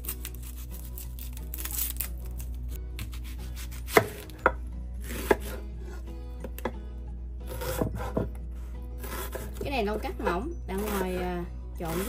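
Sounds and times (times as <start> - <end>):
knife chopping on cutting board: 3.0 - 5.6, 7.5 - 8.4.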